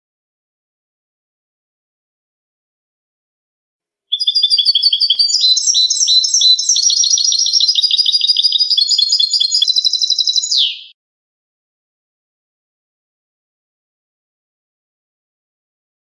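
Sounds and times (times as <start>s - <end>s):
bird twittering song: 4.1s - 10.9s.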